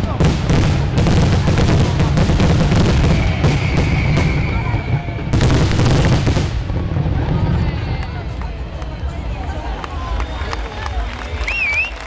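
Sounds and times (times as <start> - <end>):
firework bangs and crackling: 0.0 - 12.0
steady high whistle: 3.0 - 5.5, 10.1 - 12.0.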